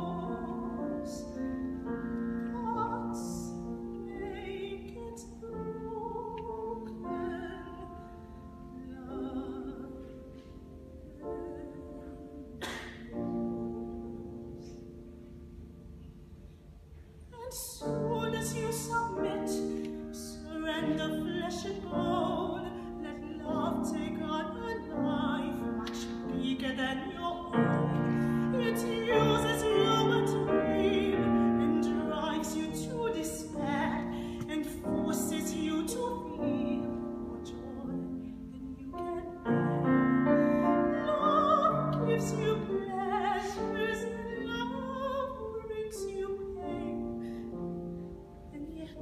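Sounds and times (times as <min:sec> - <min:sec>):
woman singing operatically: 0:00.0 - 0:01.5, 0:02.5 - 0:10.1, 0:17.3 - 0:47.0
grand piano chords: 0:00.0 - 0:49.0.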